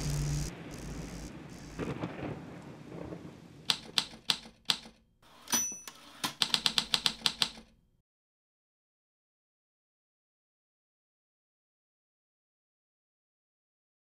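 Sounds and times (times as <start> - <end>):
low rumble: 0.0 - 3.4
typewriter keystrokes: 3.7 - 7.8
typewriter bell ding: 5.3 - 7.6.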